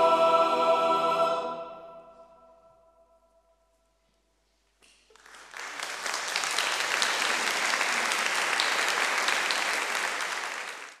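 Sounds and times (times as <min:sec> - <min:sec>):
choral music: 0:00.0 - 0:03.7
audience applauding: 0:05.1 - 0:11.0.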